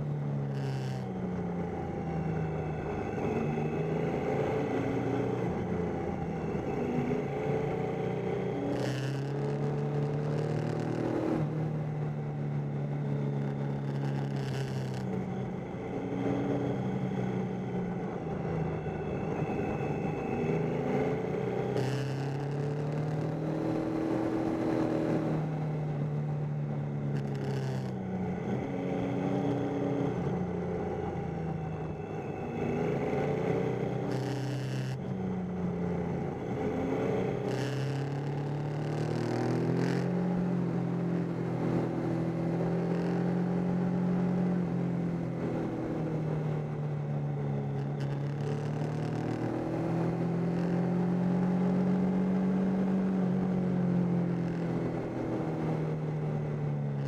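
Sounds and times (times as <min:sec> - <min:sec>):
road and wind rush: 0:00.0 - 0:57.0
motorcycle engine revving: 0:02.5 - 0:12.1, 0:17.8 - 0:26.4, 0:27.0 - 0:35.0, 0:35.7 - 0:57.0.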